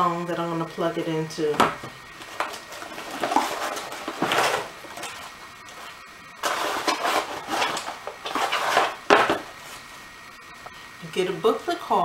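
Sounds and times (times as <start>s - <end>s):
paper rustling and handling noise: 2.1s - 9.9s.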